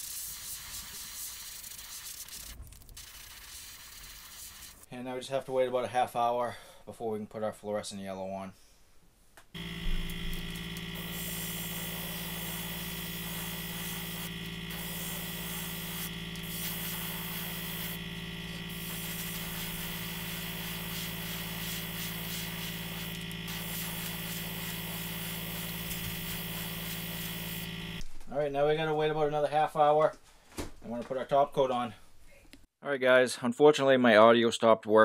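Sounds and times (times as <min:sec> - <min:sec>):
airbrush hissing: 0:00.0 - 0:04.9, 0:09.6 - 0:28.0
compressor humming: 0:09.6 - 0:28.0.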